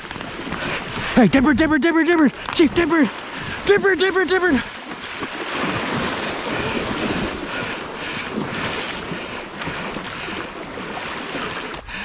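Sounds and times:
water churning and rushing: 0:00.0 - 0:12.0
dog splashing through water: 0:04.5 - 0:11.8
wind buffeting microphone: 0:04.8 - 0:11.5.

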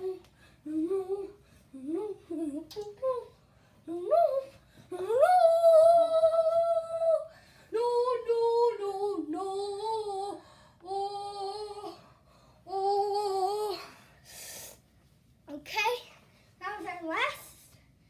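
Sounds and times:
person singing wordless tune: 0:00.0 - 0:12.0.

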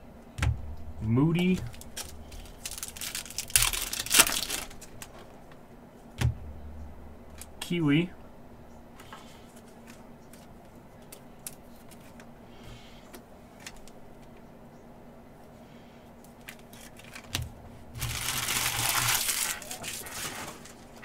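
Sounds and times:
trading cards handled: 0:01.4 - 0:05.3, 0:09.0 - 0:12.3, 0:16.3 - 0:17.4
wrapper torn open crinkling: 0:01.6 - 0:05.1, 0:16.5 - 0:17.3, 0:18.0 - 0:21.0.

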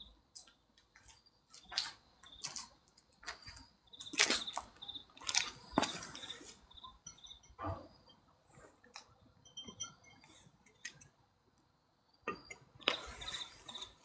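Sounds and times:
glass bottle clinking on concrete: 0:05.3 - 0:08.3, 0:09.4 - 0:11.0.

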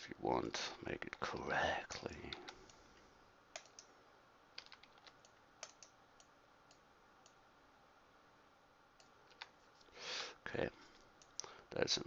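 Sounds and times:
keyboard and mouse clicks: 0:03.5 - 0:03.9, 0:04.6 - 0:07.4.

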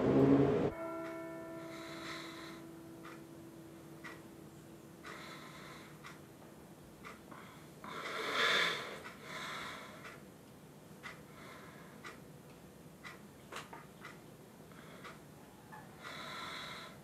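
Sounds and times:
clock ticking: 0:00.7 - 0:08.2, 0:08.9 - 0:15.4
person breathing raspily: 0:05.0 - 0:06.2, 0:07.3 - 0:10.2, 0:11.3 - 0:12.2, 0:14.7 - 0:15.3, 0:16.0 - 0:17.0.

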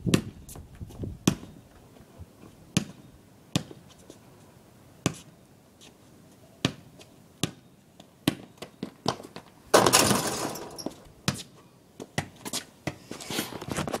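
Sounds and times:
basketball bouncing on pavement: 0:00.0 - 0:01.6, 0:02.7 - 0:03.8, 0:05.0 - 0:05.3, 0:06.6 - 0:13.0
basketball rim and backboard clanging: 0:09.7 - 0:11.0.

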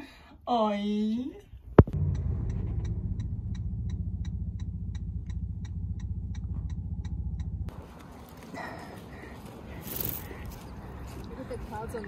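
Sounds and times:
turn signal ticking: 0:01.4 - 0:08.4
car cabin rumble: 0:01.6 - 0:07.8.

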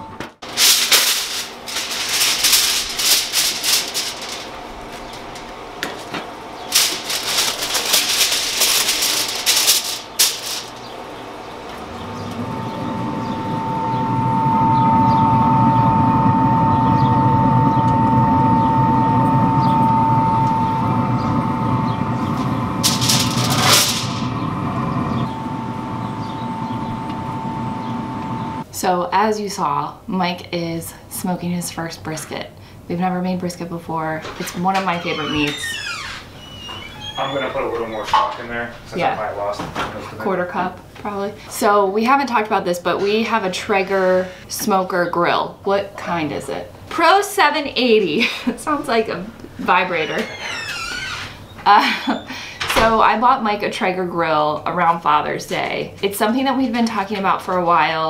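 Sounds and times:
grill fan humming with whine: 0:00.0 - 0:58.0
crackly rustling handling noise: 0:00.3 - 0:12.6, 0:22.2 - 0:24.4.

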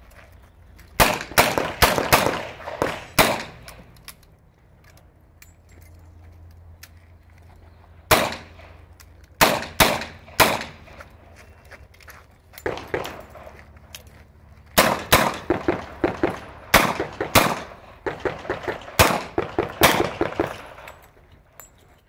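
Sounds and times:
pistol shots: 0:01.0 - 0:03.8, 0:08.1 - 0:08.8, 0:09.4 - 0:11.0, 0:12.6 - 0:13.5, 0:14.8 - 0:20.9.

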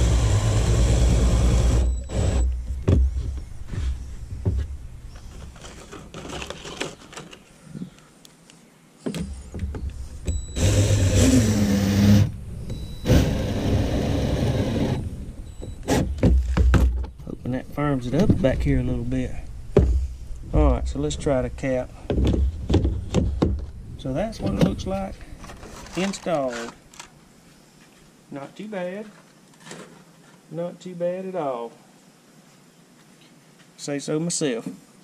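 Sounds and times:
cordless drill driving screws: 0:00.0 - 0:02.6, 0:10.3 - 0:15.2.

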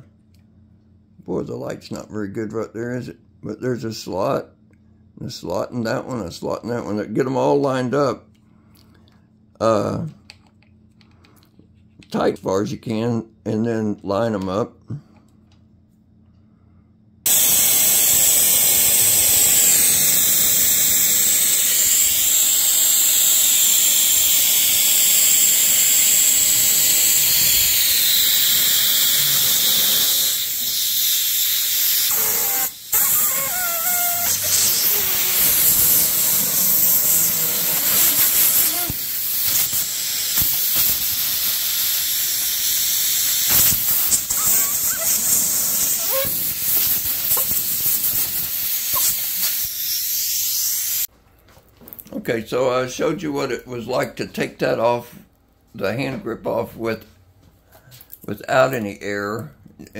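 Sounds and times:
compressed air hissing: 0:17.2 - 0:51.1.

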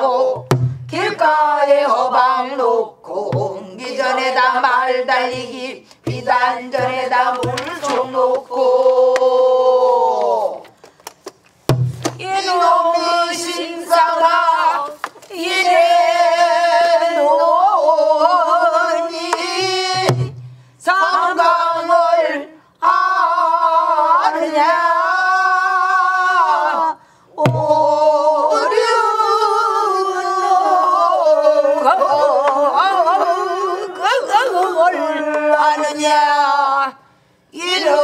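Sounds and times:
woman singing: 0:00.0 - 0:10.6, 0:12.2 - 0:37.0
barrel drum thud: 0:00.4 - 0:01.0, 0:11.7 - 0:12.3.

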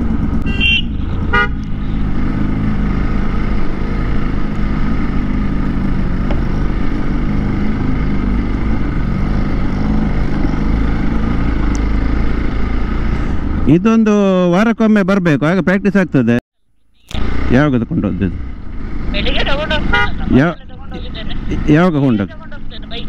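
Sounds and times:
motorcycle engine running: 0:00.0 - 0:13.7
short horn beep: 0:00.4 - 0:01.5.

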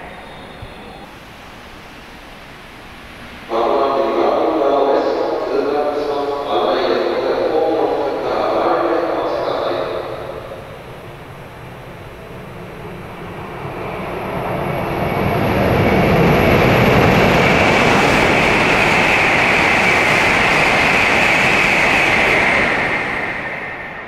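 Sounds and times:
high-speed train passing: 0:00.0 - 0:24.0.

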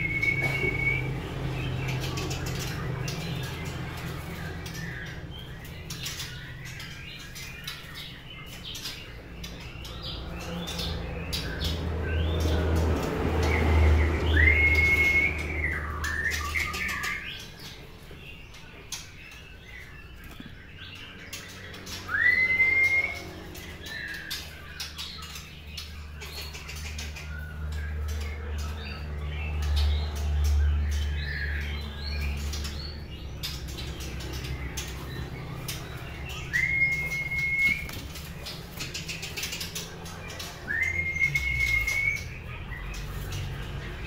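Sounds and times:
bird whistling: 0:00.0 - 0:03.6, 0:13.4 - 0:17.8, 0:21.5 - 0:25.4, 0:35.5 - 0:39.6, 0:40.6 - 0:43.1
bird warbling and chattering: 0:00.0 - 0:44.0.

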